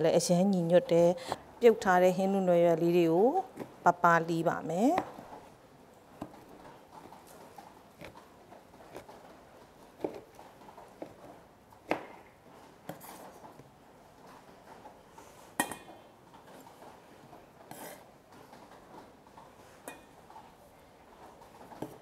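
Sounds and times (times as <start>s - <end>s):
knife chopping on wooden board: 10.0s - 10.4s, 11.8s - 12.2s.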